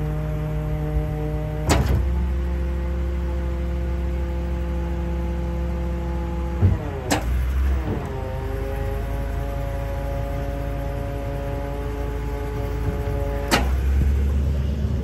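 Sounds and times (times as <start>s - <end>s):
hydraulic pump whining: 0.0s - 15.0s
lift clunk: 1.6s - 2.3s, 6.6s - 8.4s, 12.6s - 14.4s.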